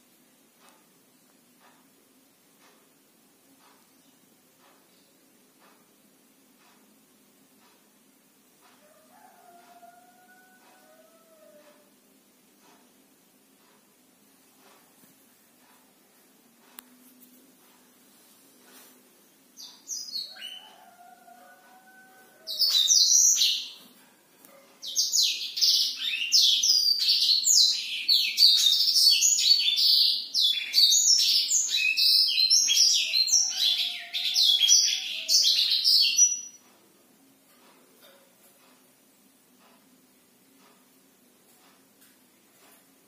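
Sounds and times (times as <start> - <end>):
canary singing: 19.6 - 36.6.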